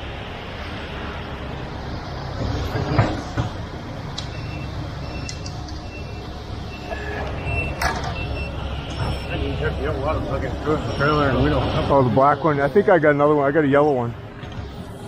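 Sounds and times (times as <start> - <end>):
diesel engine rumbling: 0.0 - 15.0.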